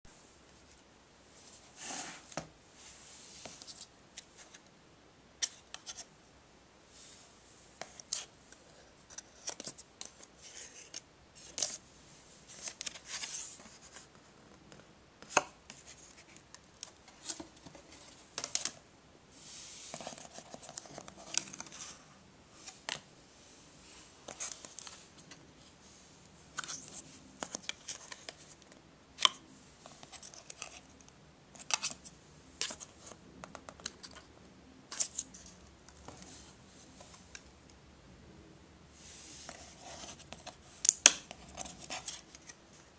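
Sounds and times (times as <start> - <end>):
fingers rustling on pages: 7.8 - 11.8, 12.5 - 14.3, 19.8 - 22.0, 26.5 - 34.3, 39.4 - 42.8.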